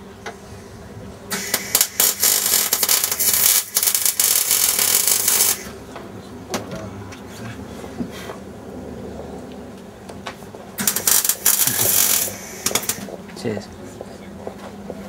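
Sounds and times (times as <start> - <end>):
harsh hiss spurts: 1.3 - 5.8, 10.8 - 13.2.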